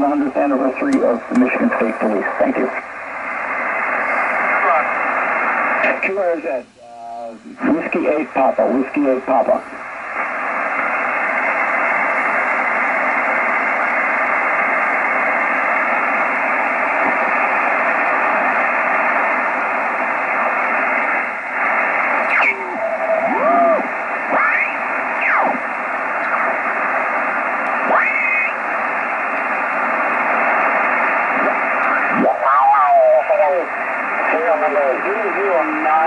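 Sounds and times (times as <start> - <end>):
radio receiver hissing: 0.0 - 36.0
radio whistles gliding in pitch: 3.9 - 4.8, 20.4 - 25.6, 26.2 - 33.2.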